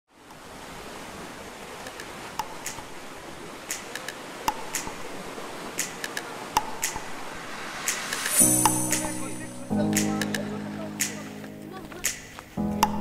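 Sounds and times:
sea surf washing into cave: 0.1 - 13.0.

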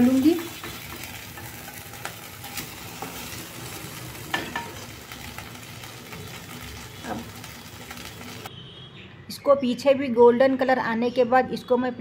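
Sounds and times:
butter sizzling in a pan: 0.0 - 8.5.

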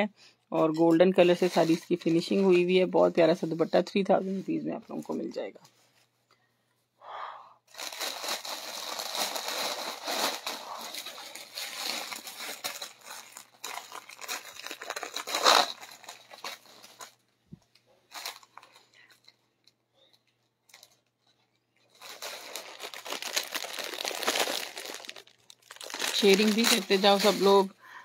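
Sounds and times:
plastic bags crinkling: 7.7 - 17.3, 18.1 - 27.8.

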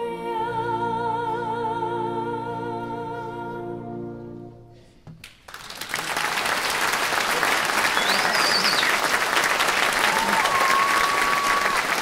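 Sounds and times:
woman singing with vibrato: 0.0 - 4.1
audience applause: 5.5 - 12.0.

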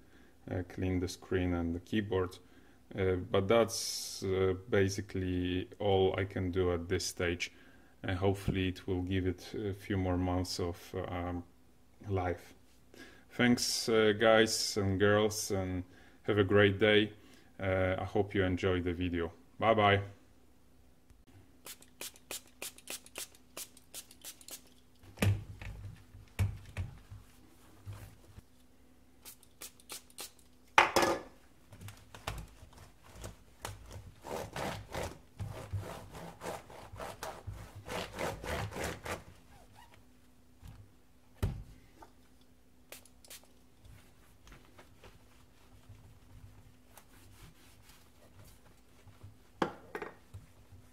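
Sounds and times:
cloth wiping laptop: 27.0 - 28.4, 43.9 - 49.6.

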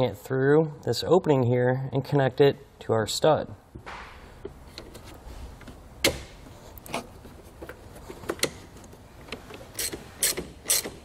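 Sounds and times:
socket ratchet clicking: 9.7 - 11.0.

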